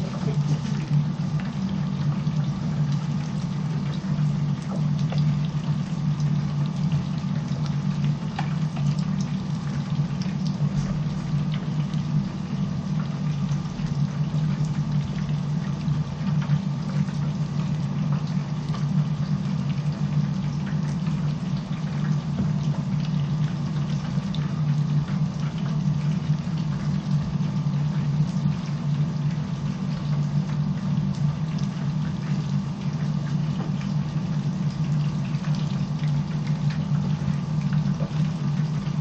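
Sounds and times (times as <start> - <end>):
hot oil bubbling and sizzling: 0.0 - 39.0.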